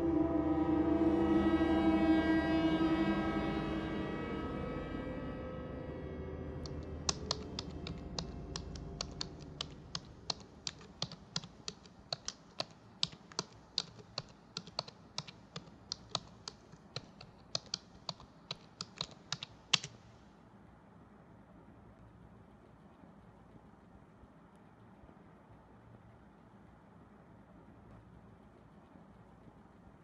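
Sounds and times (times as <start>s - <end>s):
laptop keyboard typing: 6.7s - 20.0s.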